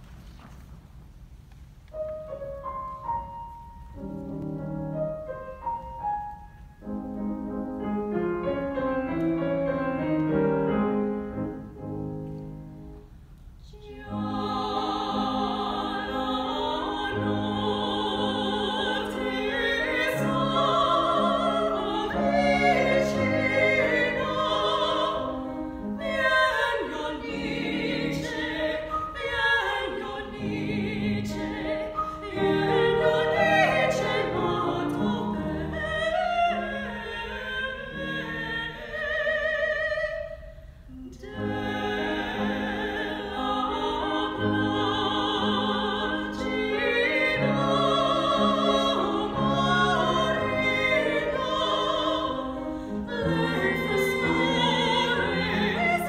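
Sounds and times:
grand piano playing: 0:01.9 - 0:39.6, 0:41.2 - 0:56.0
operatic women singing: 0:13.7 - 0:40.4, 0:41.0 - 0:56.0.

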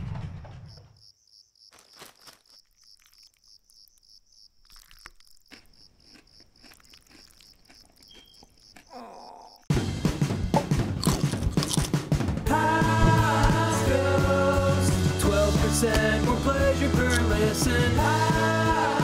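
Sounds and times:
crickets chirping: 0:00.7 - 0:09.7
chip bag crinkling: 0:01.7 - 0:04.0, 0:04.6 - 0:08.6, 0:11.0 - 0:12.0
potato chips crunching: 0:01.7 - 0:04.0, 0:04.6 - 0:09.0, 0:10.8 - 0:12.0.

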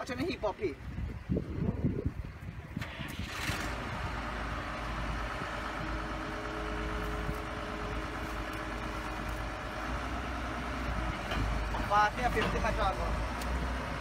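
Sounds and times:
engine rumbling: 0:00.0 - 0:14.0.

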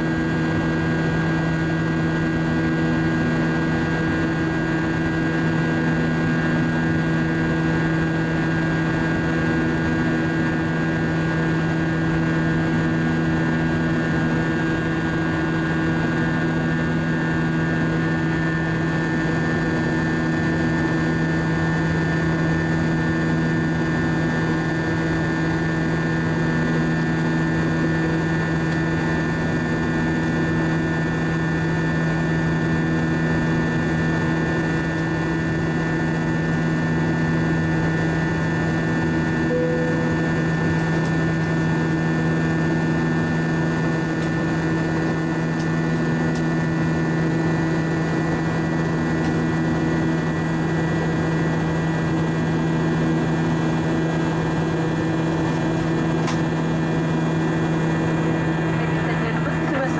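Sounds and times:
jet engines droning: 0:00.0 - 0:59.9
low hum tones: 0:39.2 - 0:42.4.

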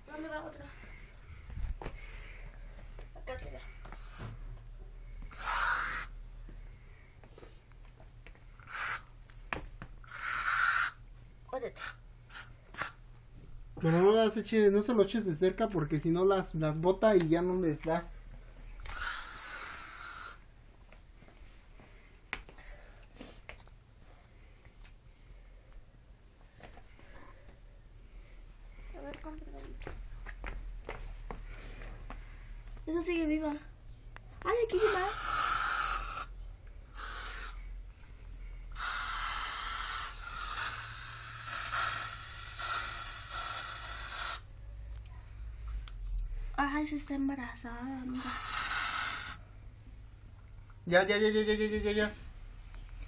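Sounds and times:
aerosol spray can hissing: 0:04.0 - 0:04.4, 0:05.3 - 0:06.2, 0:08.6 - 0:09.1, 0:10.0 - 0:11.0, 0:11.8 - 0:13.0, 0:18.8 - 0:20.5, 0:34.7 - 0:36.3, 0:36.9 - 0:37.7, 0:38.7 - 0:44.5, 0:48.1 - 0:49.4.

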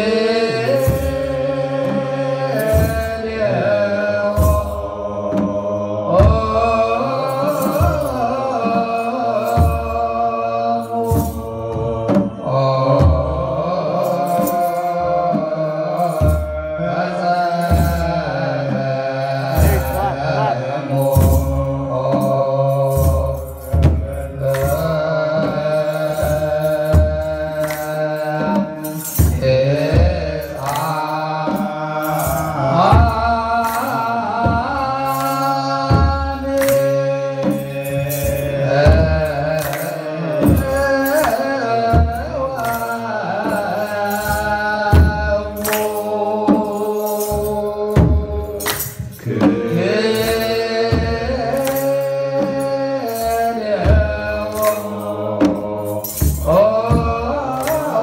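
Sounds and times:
group chanting in unison: 0:00.0 - 0:58.0
drum beating slow pulse: 0:11.0 - 0:27.8.

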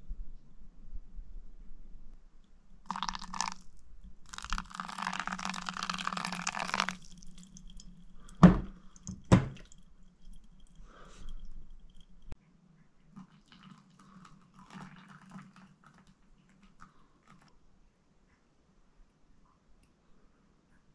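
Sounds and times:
low steady hum: 0:00.0 - 0:20.9
water pouring onto coffee: 0:02.8 - 0:12.4, 0:13.2 - 0:17.5
sharp knocks: 0:08.4 - 0:09.6.

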